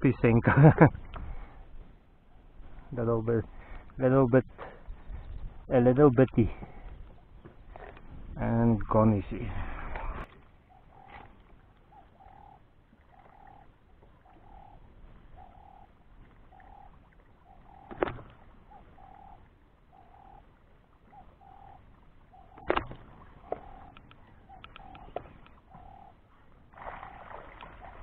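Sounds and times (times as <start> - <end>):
bird repeating low call: 10.3 - 28.0.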